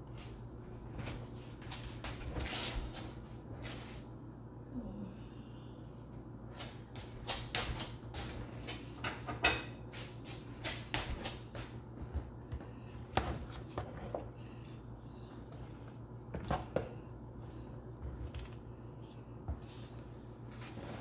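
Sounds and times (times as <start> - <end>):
steady low hum: 0.0 - 21.0
hands mixing pasta salad: 6.4 - 21.0.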